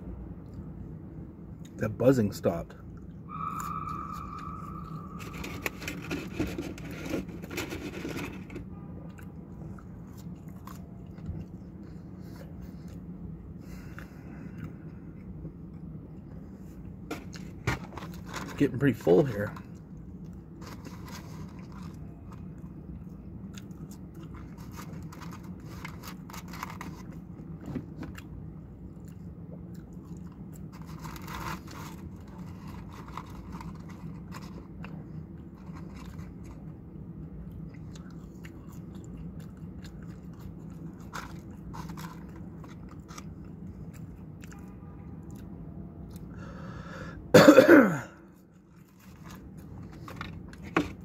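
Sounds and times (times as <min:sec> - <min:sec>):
low hum: 0:02.7 - 0:18.6
man chewing fries: 0:02.8 - 0:47.0, 0:48.3 - 0:51.0
man coughing: 0:47.3 - 0:48.2.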